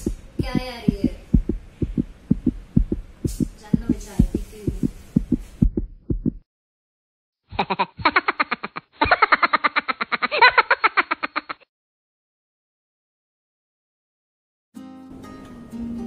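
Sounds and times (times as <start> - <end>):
heartbeat thuds: 0.0 - 6.5.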